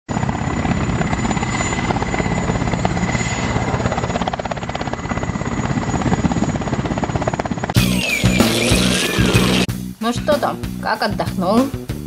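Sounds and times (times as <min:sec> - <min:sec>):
helicopter rotor chopping: 0:00.1 - 0:09.7
thin whine: 0:07.6 - 0:09.7.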